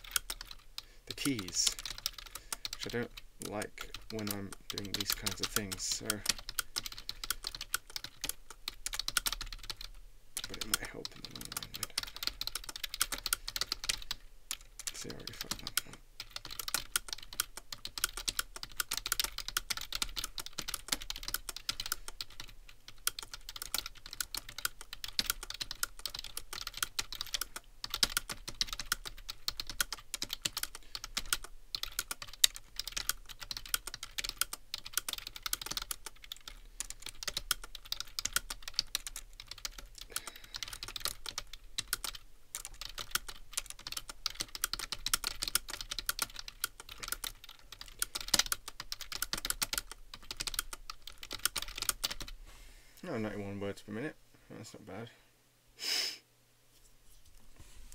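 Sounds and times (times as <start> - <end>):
fast typing on keyboard: 0.0 - 52.4.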